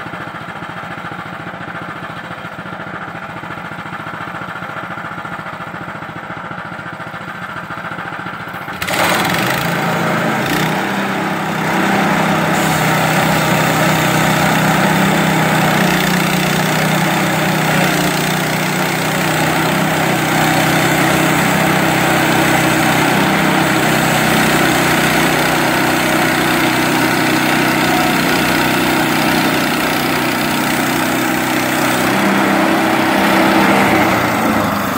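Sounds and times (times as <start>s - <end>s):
sawmill engine running: 0.0s - 34.9s
band blade sawing log: 8.9s - 34.9s.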